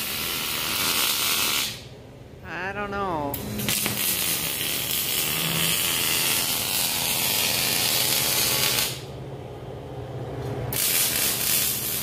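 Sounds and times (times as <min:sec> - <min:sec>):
arc welding crackling hiss: 0:00.0 - 0:01.9, 0:03.6 - 0:09.1, 0:10.7 - 0:12.0.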